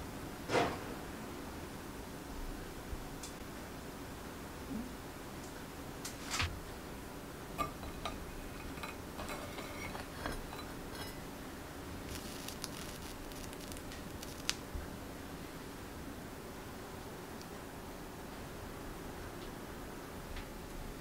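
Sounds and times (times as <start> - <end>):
spatula clicking and scraping plate: 7.7 - 11.2.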